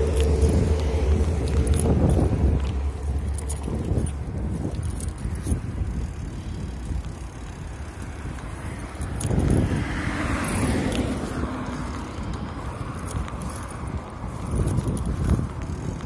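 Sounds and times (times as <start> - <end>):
bicycle tyre noise on pavement: 0.0 - 16.0
car passing: 0.0 - 16.0
wind rumbling on microphone: 0.0 - 16.0.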